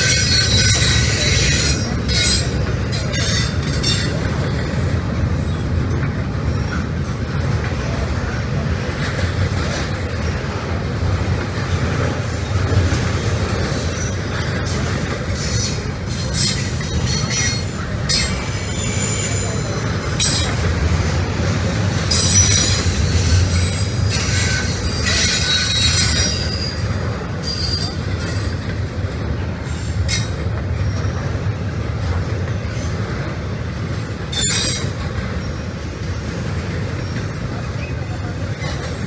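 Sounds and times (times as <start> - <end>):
wheel squeal: 0.0 - 4.2, 15.3 - 20.6, 22.1 - 28.6, 34.3 - 35.6
freight train rumble: 0.0 - 39.0
train wheel clack: 0.0 - 39.0.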